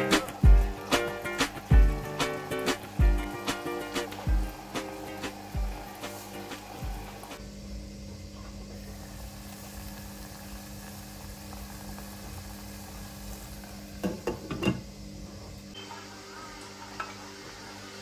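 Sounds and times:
sizzling hiss: 0.0s - 7.8s, 8.4s - 18.0s
kitchenware clinking: 14.0s - 14.9s.

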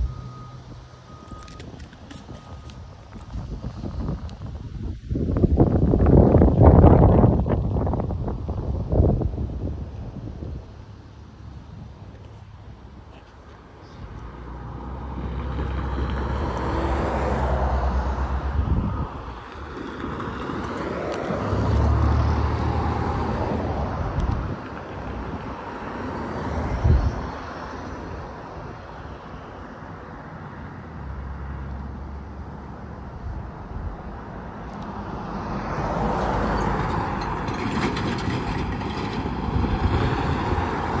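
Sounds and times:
freight train wheels rumbling on rail: 19.0s - 26.2s, 36.1s - 41.0s.

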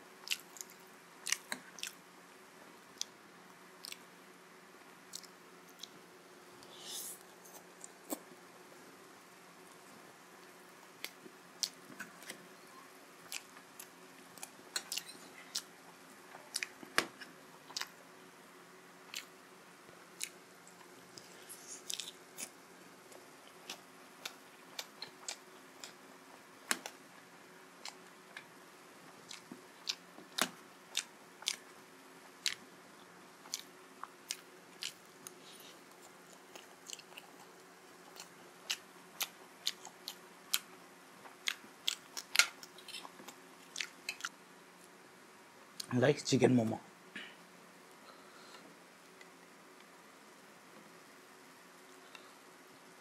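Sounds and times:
faint steady hum: 0.0s - 53.0s
chewing with wet mouth smacks: 0.2s - 2.0s, 13.3s - 15.7s, 23.4s - 26.0s, 33.5s - 40.7s, 41.4s - 44.4s.

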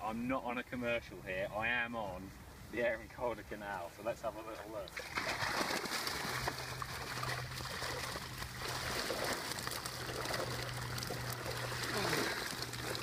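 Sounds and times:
water streaming from a net: 4.9s - 13.0s.

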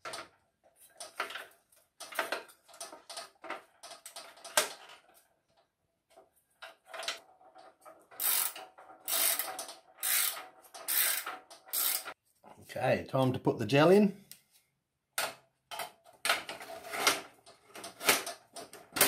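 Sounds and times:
hand ratchet rasping: 8.1s - 12.2s.

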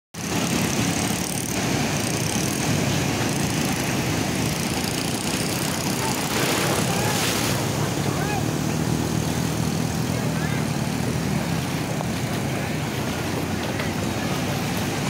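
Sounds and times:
ocean surf breaking: 0.2s - 15.0s.

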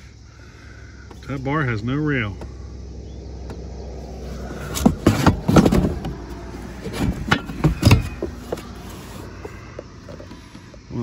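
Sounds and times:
steady low hum: 0.0s - 11.0s
metal bars knocking and scraping: 6.9s - 8.6s.

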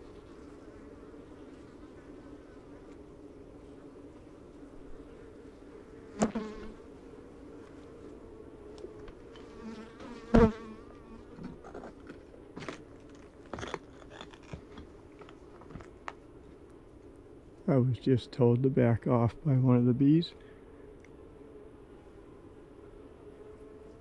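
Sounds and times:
honeybees buzzing: 0.0s - 24.0s
bee flying past microphone: 4.8s - 11.7s.

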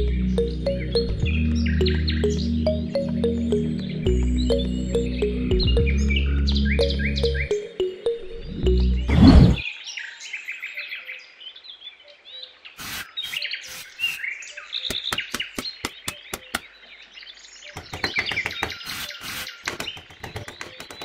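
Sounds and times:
small birds chirping: 0.0s - 21.0s
sharp clicks and taps: 14.9s - 16.7s, 17.8s - 21.0s.

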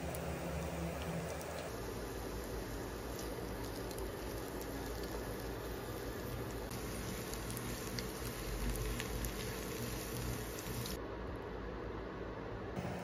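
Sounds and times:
meat and vegetables frying: 0.0s - 11.0s.

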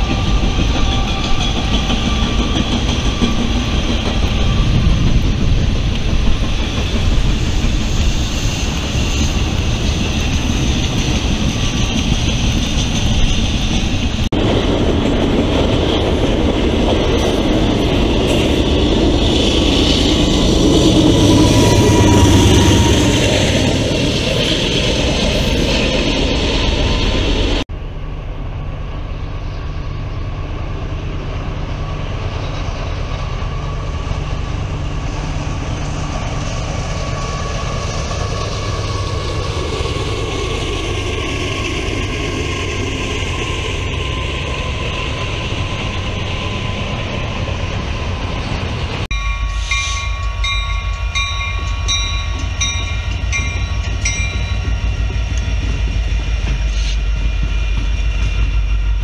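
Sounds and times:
freight train rumbling: 0.0s - 59.0s
ringing bell: 49.1s - 54.8s.

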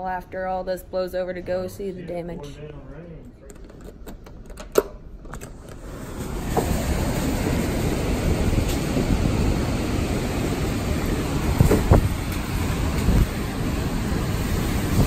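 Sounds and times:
hurricane wind: 5.6s - 15.0s
heavy rain: 5.8s - 15.0s
wind buffeting microphone: 5.8s - 15.0s.

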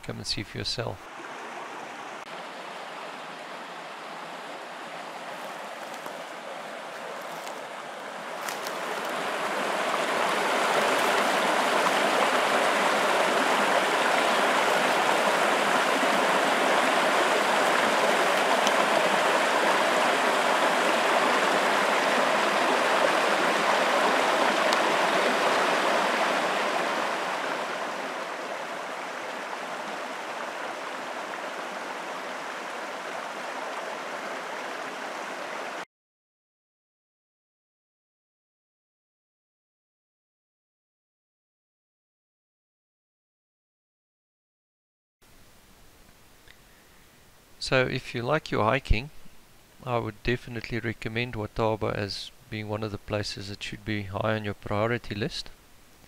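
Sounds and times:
stream rushing over boulders: 1.0s - 35.8s.

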